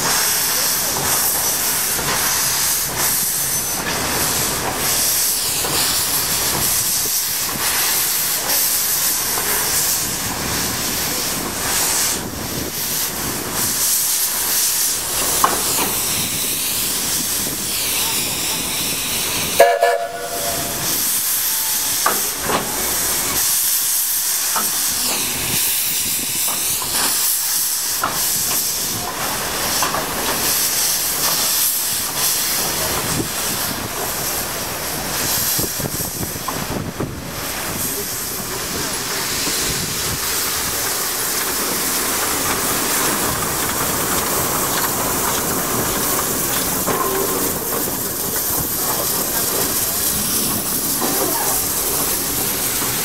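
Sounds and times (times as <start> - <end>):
steam hissing: 0.0 - 53.0
steam whistle toot: 19.6 - 20.9.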